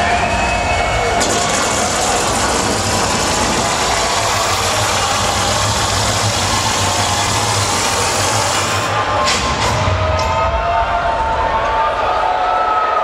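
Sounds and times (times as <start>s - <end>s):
distorted dance music: 0.0s - 10.3s.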